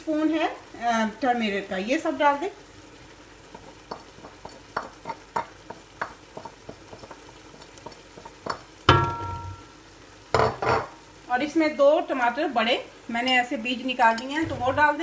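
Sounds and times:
meat sizzling in a pot: 0.0s - 15.0s
utensil clanging on cookware: 10.4s - 11.0s.

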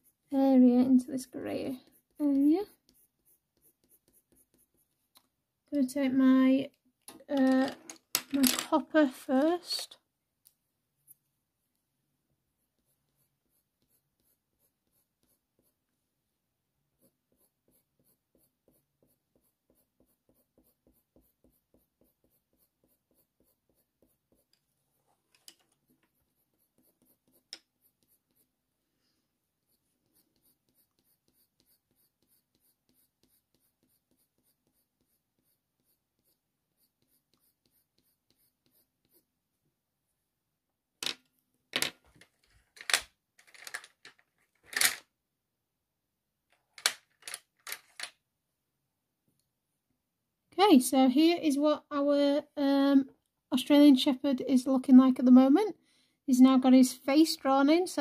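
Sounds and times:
colour pencil scratching on paper: 0.0s - 5.2s, 11.0s - 16.1s, 16.8s - 39.4s.

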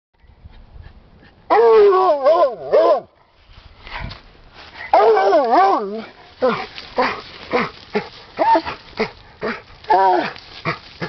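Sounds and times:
hound baying: 4.9s - 10.9s.

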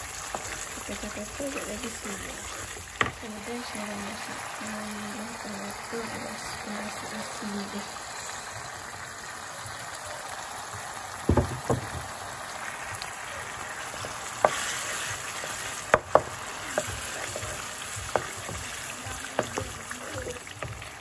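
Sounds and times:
sauce sizzling in a pan: 0.0s - 21.0s
spatula knocking against pan: 15.9s - 18.7s, 19.3s - 20.8s.

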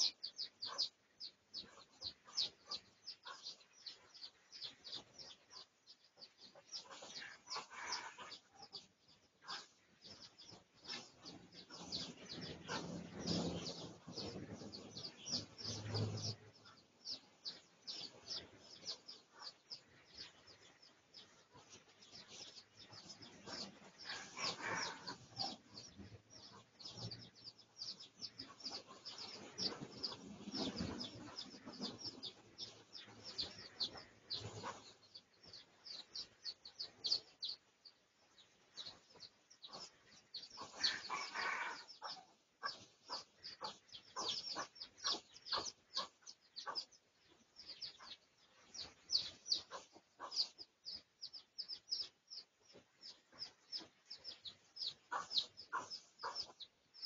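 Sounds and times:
junglefowl clucking and calling: 6.6s - 8.5s, 23.4s - 25.7s, 40.6s - 46.8s.

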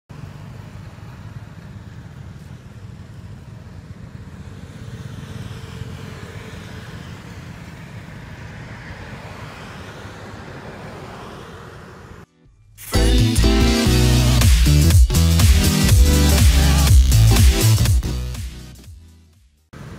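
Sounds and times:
low traffic rumble: 0.1s - 12.3s
motorbike passing: 0.1s - 12.3s
van passing: 0.1s - 12.3s.

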